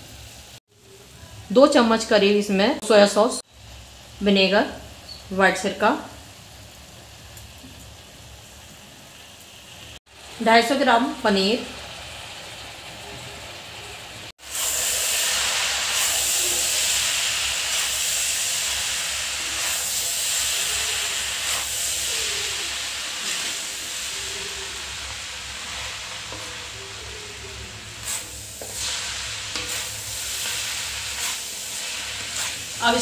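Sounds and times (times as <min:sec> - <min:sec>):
noodles sizzling in a pan: 0:00.0 - 0:33.0.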